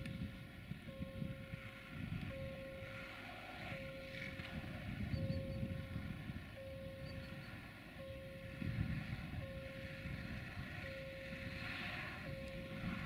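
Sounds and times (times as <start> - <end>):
diesel locomotive rumble: 0.0 - 13.0
electronic beep: 5.1 - 5.8, 6.6 - 7.5.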